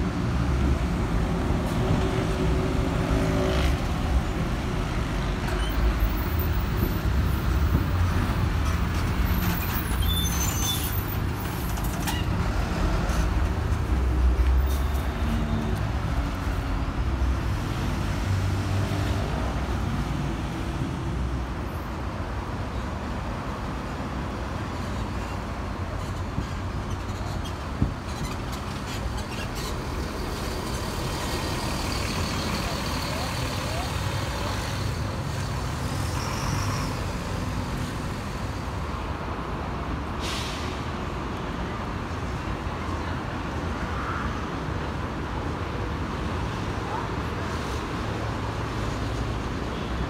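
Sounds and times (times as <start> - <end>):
bus engines running: 0.0 - 50.0
road traffic noise: 0.0 - 50.0
short high squeaks: 9.3 - 11.1.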